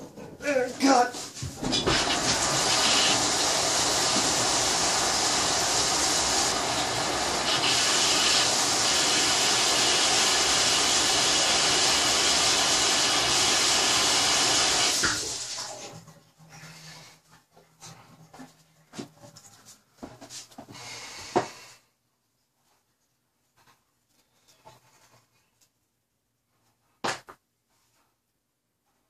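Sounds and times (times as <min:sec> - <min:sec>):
tap water rushing: 0:01.4 - 0:16.1.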